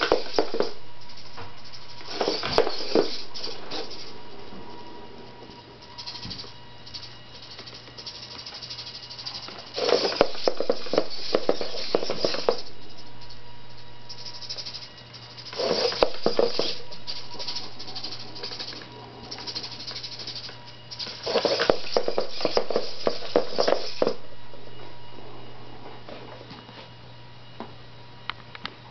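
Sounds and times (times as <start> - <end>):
robot feet clicking on wooden floor: 0.0 - 4.1, 5.9 - 12.7, 15.4 - 24.2
robot servos buzzing: 0.0 - 4.2, 5.5 - 24.2.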